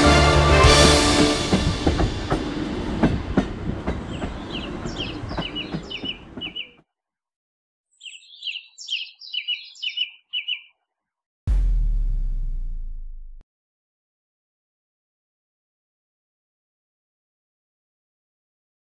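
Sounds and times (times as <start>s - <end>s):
diesel railcar rumbling: 0.0s - 6.7s
train wheel knocks: 1.2s - 6.6s
small bird chirping: 4.1s - 6.8s, 7.9s - 10.8s.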